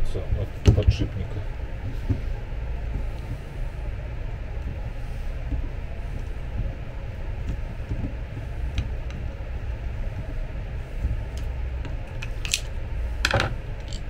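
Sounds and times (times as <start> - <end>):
metallic clicks and scrapes: 11.3 - 14.0.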